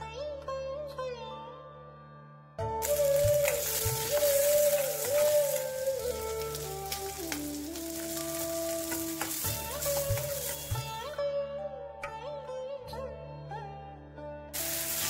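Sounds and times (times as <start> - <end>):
instrumental music: 0.0 - 15.0
shallots and garlic sizzling: 2.8 - 11.0, 14.6 - 15.0.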